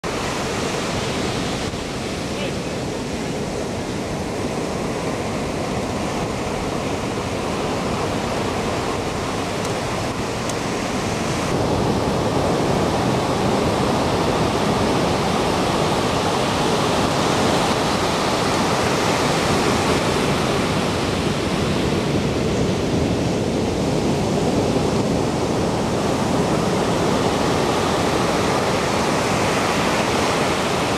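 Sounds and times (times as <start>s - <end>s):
ocean surf breaking: 0.0s - 30.9s.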